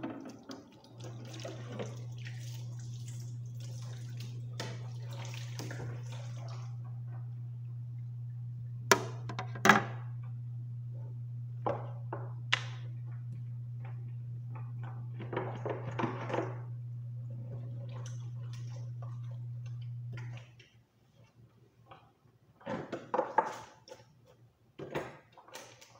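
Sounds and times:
steady low hum: 1.1 - 20.4.

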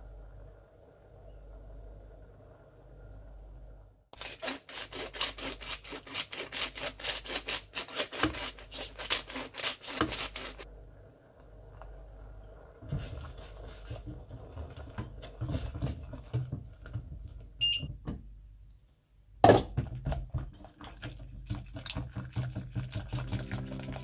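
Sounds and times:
handling and pouring noises: 4.2 - 10.6, 12.8 - 17.6, 19.9 - 24.0
whisk clicking in pot: 19.8 - 23.9.

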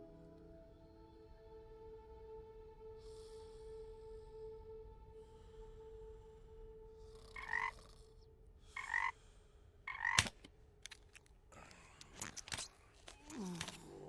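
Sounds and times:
frog croaking: 7.2 - 8.1, 8.8 - 9.2, 9.9 - 10.3.

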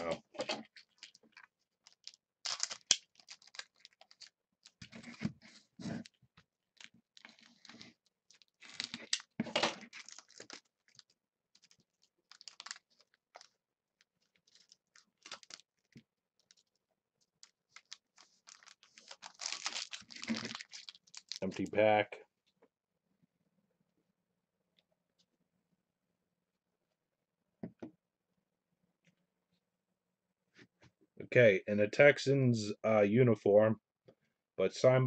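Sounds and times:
wrapper crinkling: 0.7 - 5.2, 5.9 - 21.6.

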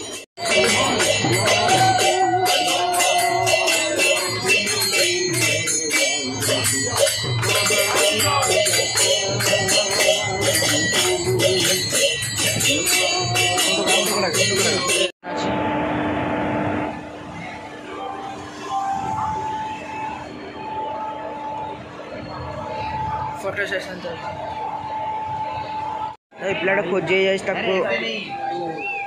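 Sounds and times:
music with jingling percussion: 0.0 - 15.2.

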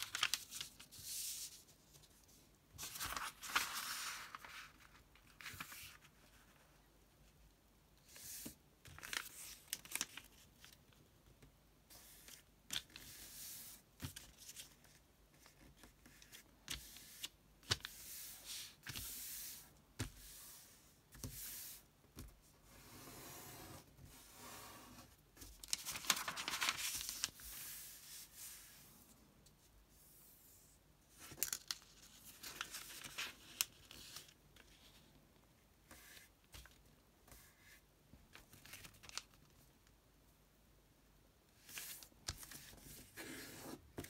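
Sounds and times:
paper rustling and crinkling: 0.0 - 6.7, 8.2 - 11.0, 25.4 - 28.3, 31.2 - 35.1, 38.3 - 39.6
paper crease clicks: 25.6 - 27.3.

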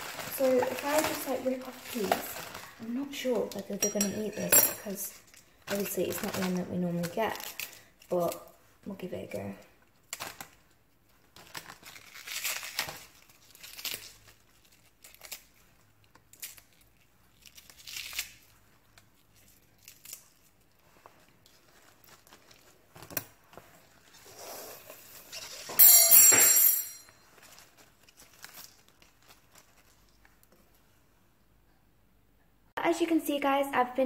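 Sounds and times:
plastic wrapping crinkling: 0.0 - 25.7, 27.1 - 31.0
leaves tearing off cabbage: 11.4 - 25.7, 27.4 - 30.3.

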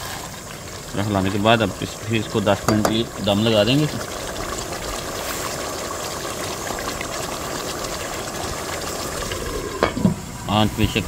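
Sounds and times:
gas burner hissing: 0.0 - 11.0.

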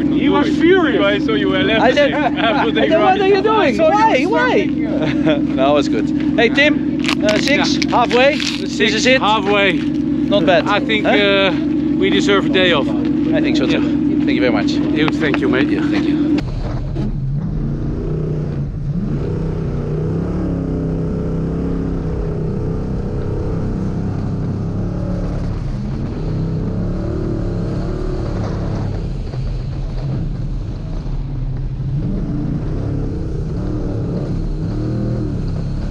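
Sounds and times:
car engine revving under load: 0.0 - 35.9.

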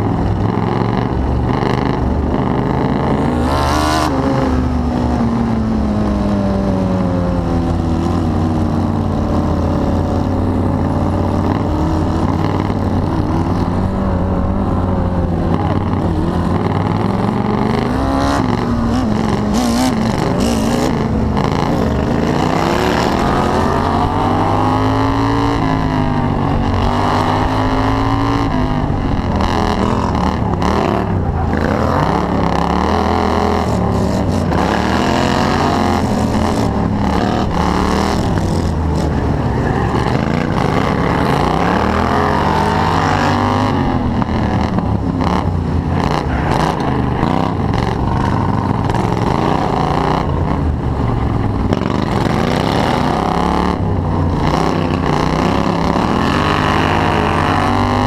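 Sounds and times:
lawn mower engine revving: 7.8 - 58.0.

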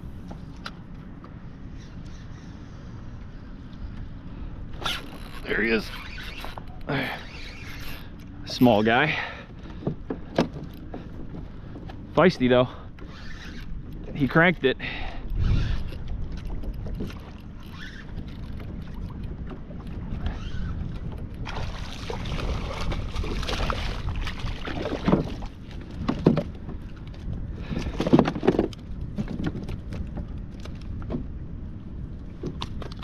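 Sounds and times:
steady low rumble: 0.0 - 5.9, 13.6 - 33.0.

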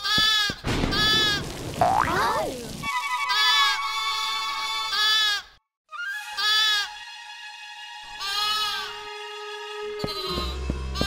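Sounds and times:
background music: 5.9 - 11.0.

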